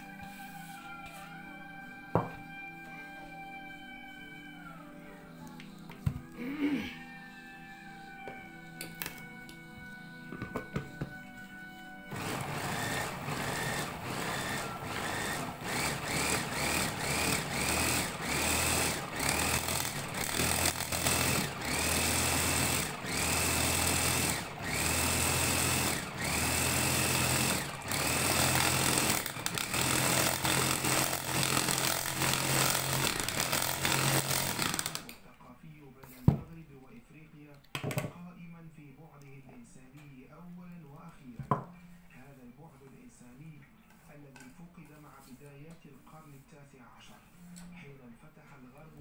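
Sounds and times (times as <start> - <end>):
electric food chopper motor whining: 12.1 - 35.2.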